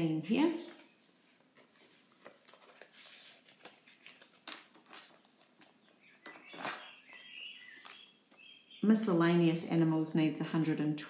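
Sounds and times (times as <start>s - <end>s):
banknotes rustling: 0.6s - 8.5s
banknotes crinkling and flicking: 0.7s - 8.5s.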